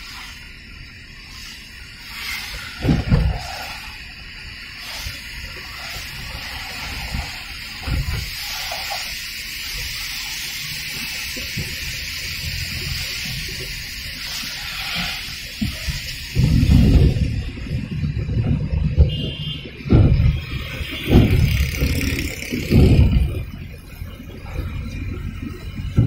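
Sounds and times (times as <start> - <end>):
rain on a car: 0.0 - 26.0
tyres hissing on wet road: 0.0 - 26.0
low thumps: 15.6 - 23.8.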